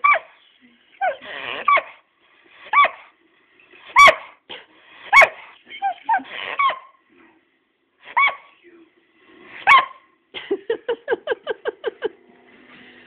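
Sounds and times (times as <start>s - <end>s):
dog yelping and yipping: 0.0s - 0.4s, 1.0s - 2.0s, 2.6s - 3.1s, 3.9s - 4.4s, 5.1s - 7.0s, 8.1s - 8.5s, 9.6s - 10.0s.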